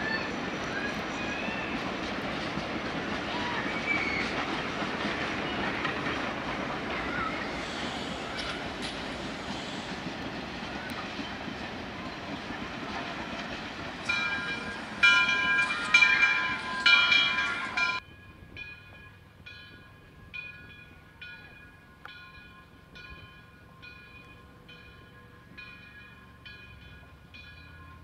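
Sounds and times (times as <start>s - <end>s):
running train noise: 0.0s - 28.0s
locomotive bell ringing: 13.8s - 28.0s.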